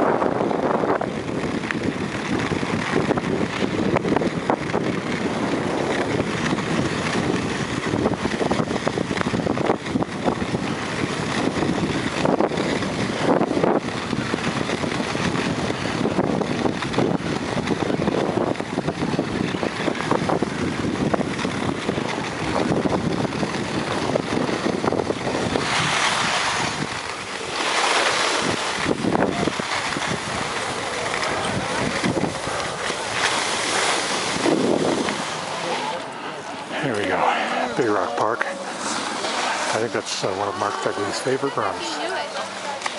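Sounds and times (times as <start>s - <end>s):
wind on microphone: 0.0s - 42.9s
ski scrapes: 25.3s - 36.0s, 36.7s - 42.8s
skis hissing over snow: 25.4s - 35.9s.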